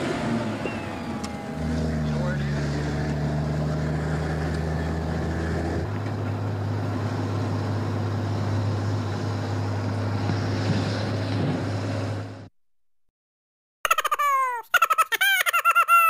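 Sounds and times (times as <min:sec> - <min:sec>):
fire engine motor running: 0:00.0 - 0:12.5.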